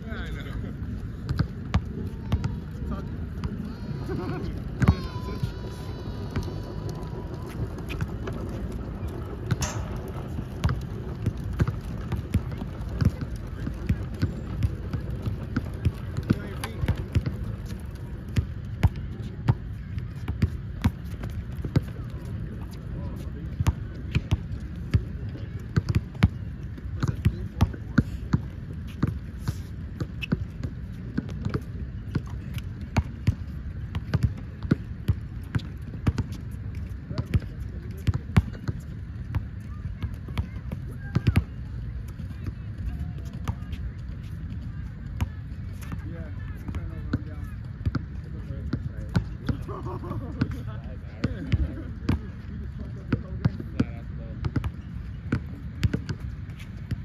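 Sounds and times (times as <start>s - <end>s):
players' footsteps: 0.1s - 38.9s
basketball bouncing on hard court: 1.2s - 3.6s, 4.2s - 29.2s, 30.2s - 41.6s, 53.1s - 57.0s
ball hitting basketball hoop: 9.4s - 10.8s.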